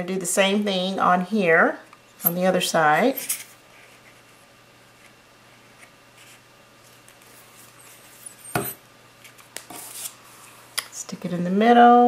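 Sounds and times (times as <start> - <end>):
rustling of card tube: 9.2 - 10.7.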